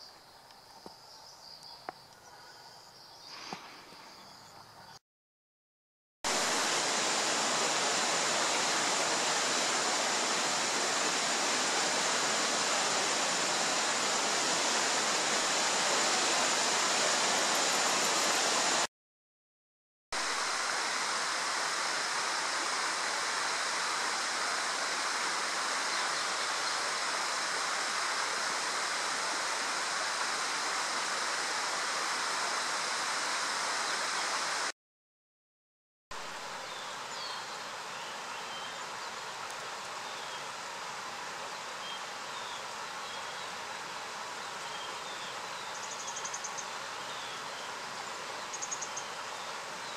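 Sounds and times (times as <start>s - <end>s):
steady rushing outdoor noise: 6.3s - 18.9s, 20.2s - 34.7s.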